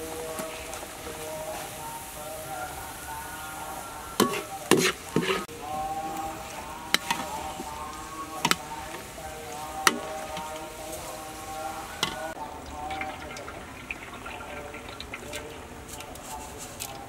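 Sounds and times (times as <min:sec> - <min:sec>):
garlic sizzling in hot oil: 0:00.0 - 0:16.8
skimmer clinking against wok: 0:04.1 - 0:05.5.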